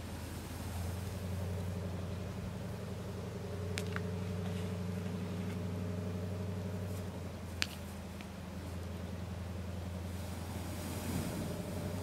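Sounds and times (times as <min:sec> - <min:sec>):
low motor hum: 0:00.0 - 0:12.0
campfire wood popping: 0:03.7 - 0:04.1.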